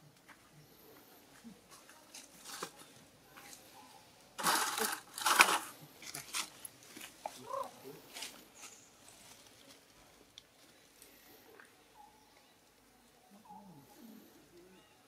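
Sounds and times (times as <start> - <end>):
loud bursts of rustling: 4.4 - 5.7.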